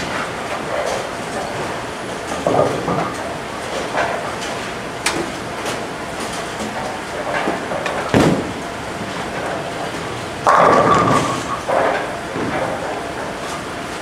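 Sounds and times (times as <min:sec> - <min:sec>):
bowling balls rolling: 0:00.0 - 0:04.3, 0:06.2 - 0:13.5
bowling pins falling: 0:07.3 - 0:08.6, 0:10.4 - 0:12.9.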